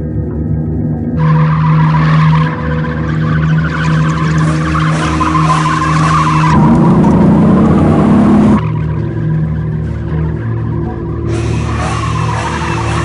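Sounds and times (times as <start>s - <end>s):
car engine revving: 1.2s - 13.0s
tyres squealing: 1.6s - 8.6s.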